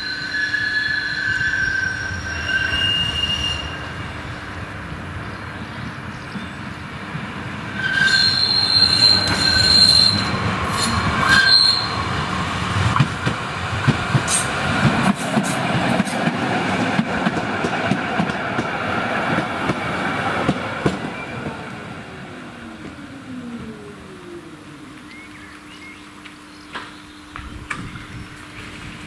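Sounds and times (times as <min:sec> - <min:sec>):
tram wheels squealing: 0:00.0 - 0:04.5, 0:07.7 - 0:12.4, 0:14.1 - 0:16.4
tram wheels rumbling on track: 0:00.0 - 0:29.0
tram whine slowing: 0:00.0 - 0:29.0.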